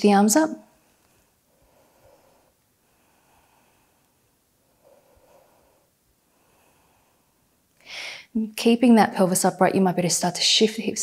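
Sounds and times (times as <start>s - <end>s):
soft breaths: 0.6s - 8.4s.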